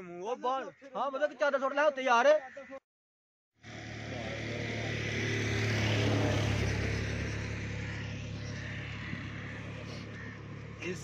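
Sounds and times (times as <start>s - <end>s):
engine droning: 3.6s - 11.0s.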